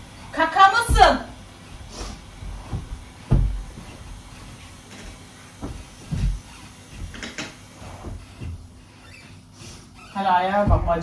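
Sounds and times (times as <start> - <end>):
dull thumps and knocks: 0.7 - 8.8, 10.4 - 11.0.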